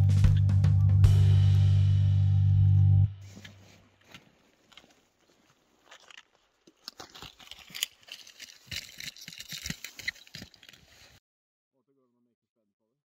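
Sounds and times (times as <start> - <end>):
clothing crunching and rustling: 3.2 - 11.2.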